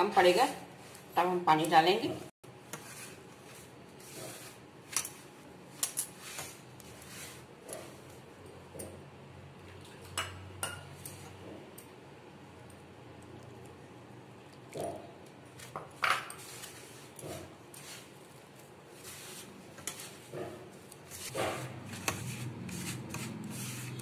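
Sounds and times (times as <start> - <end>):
hand rubbing dough in plate: 2.8 - 5.4, 6.1 - 8.0, 17.8 - 24.0.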